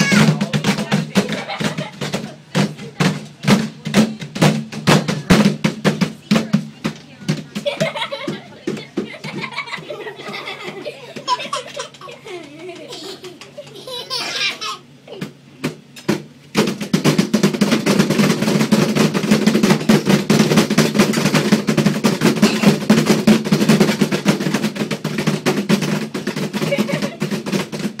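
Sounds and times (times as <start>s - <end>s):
hands drumming on a table: 15.1s - 28.0s.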